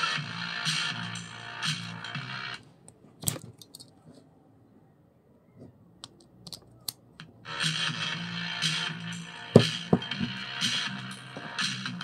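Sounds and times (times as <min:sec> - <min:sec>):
music from small loudspeaker: 0:00.0 - 0:02.6, 0:07.4 - 0:12.0.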